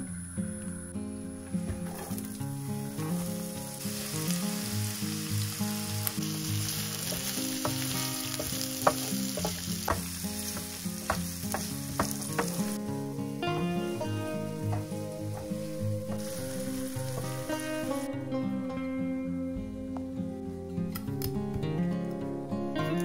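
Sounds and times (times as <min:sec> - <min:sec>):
onion sizzling in oil: 0:02.4 - 0:18.1
spatula tapping and scraping pan: 0:07.0 - 0:12.8.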